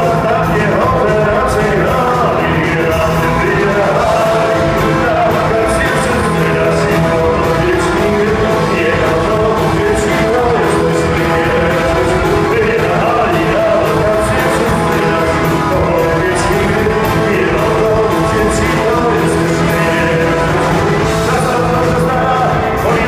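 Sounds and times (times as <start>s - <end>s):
lead vocal singing: 0.0s - 23.0s
live rock band playing: 0.0s - 23.0s.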